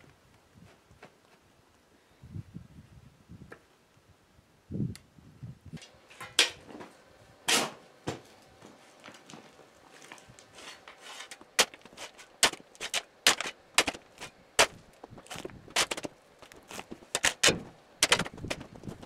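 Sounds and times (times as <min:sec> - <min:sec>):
shovel scraping rocky dirt: 0:10.5 - 0:19.0.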